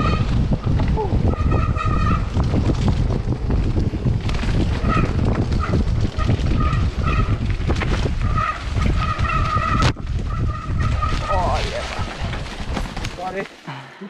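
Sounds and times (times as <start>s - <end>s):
mountain bike rumbling over trail: 0.0s - 13.7s.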